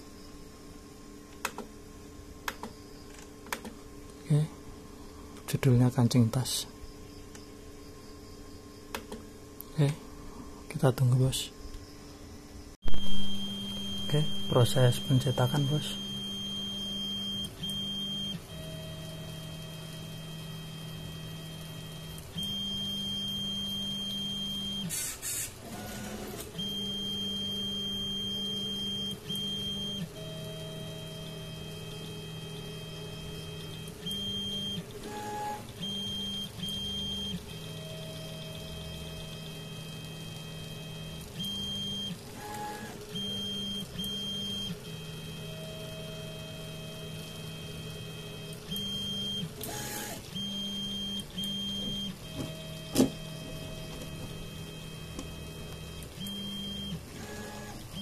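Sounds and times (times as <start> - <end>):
stepper motors whining: 12.9 - 58.0.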